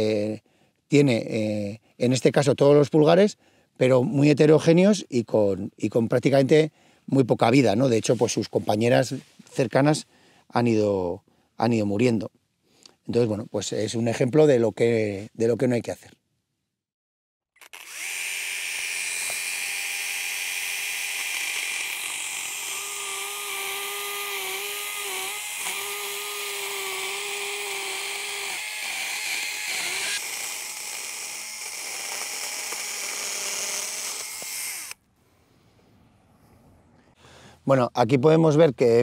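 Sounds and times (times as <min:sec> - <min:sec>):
electric chainsaw cutting wood: 0:17.6 - 0:35.0.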